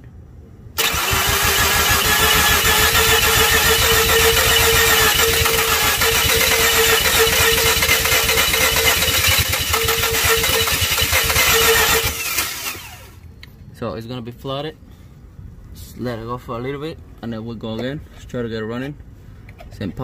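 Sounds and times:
engine cranking on starter: 0.8s - 13.2s.

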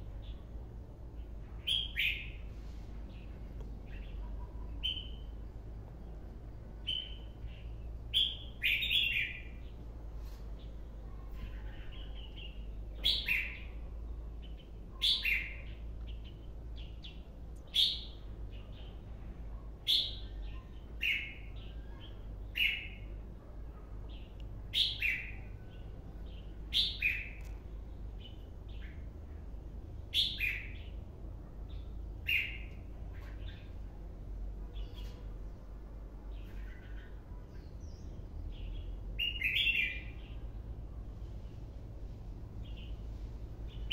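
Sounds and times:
bulbul singing: 36.7s - 40.5s.

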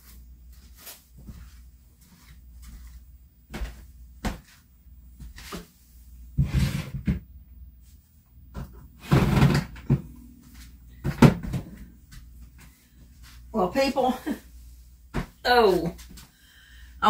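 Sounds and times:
plastic stool scraping on wood: 6.4s - 7.2s, 9.0s - 10.0s.

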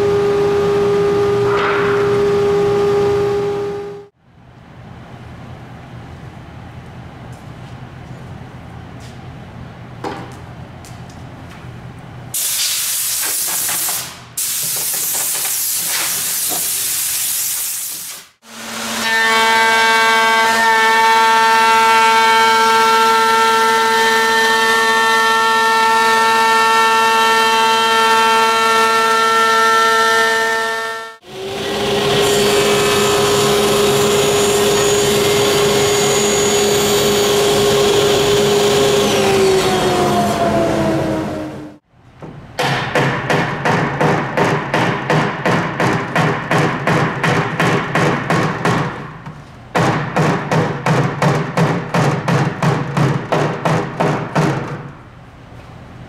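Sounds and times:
loud even hiss: 12.4s - 18.4s
electric router whining: 31.2s - 41.8s
table saw running: 31.2s - 41.8s.

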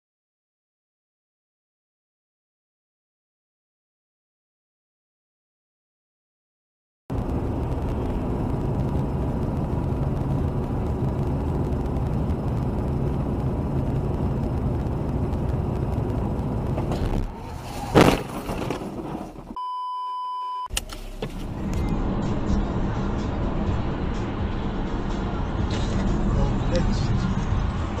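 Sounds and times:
car cabin road noise: 7.1s - 28.0s
high censor beep: 19.6s - 20.7s.

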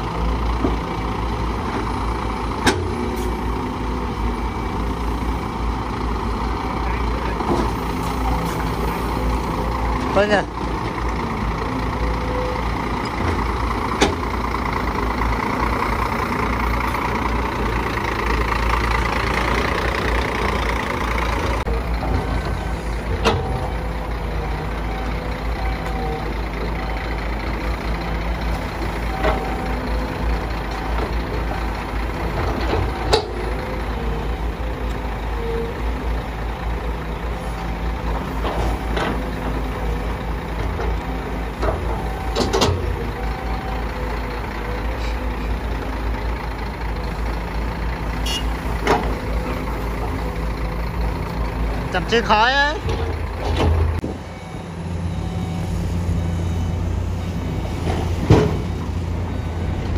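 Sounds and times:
heavy diesel engines running: 0.0s - 59.9s
excavator loading soil into truck: 20.2s - 23.8s, 37.4s - 43.6s, 52.8s - 54.5s, 55.2s - 59.9s
short beeps: 48.2s - 48.6s.

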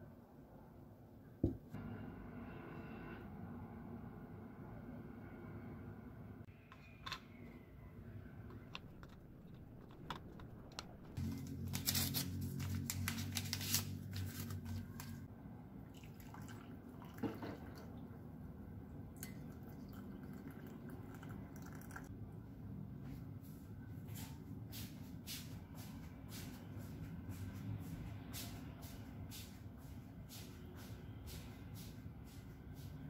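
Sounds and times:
low steady hum: 0.0s - 23.2s
wrapper tearing and crinkling: 11.2s - 15.2s.

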